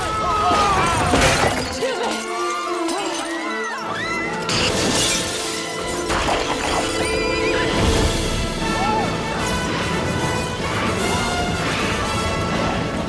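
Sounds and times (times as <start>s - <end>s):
shattering and crashing impacts: 0.0s - 3.4s, 4.4s - 7.4s
orchestral action music: 0.0s - 13.0s.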